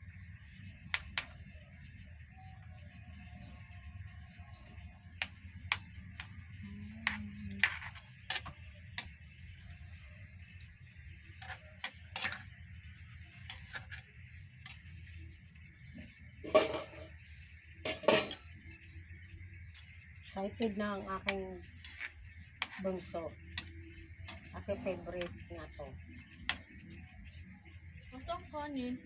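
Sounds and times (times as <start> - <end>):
gas burner hum and hiss: 0.0 - 29.0
metal spoon tapping a pan: 11.4 - 12.5, 16.4 - 17.1, 17.8 - 18.6.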